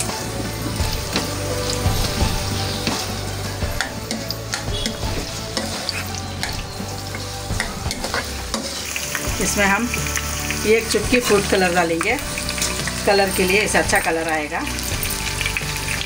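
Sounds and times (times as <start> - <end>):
potatoes sizzling in oil: 0.0 - 16.0
spatula scraping a pan: 3.7 - 8.8.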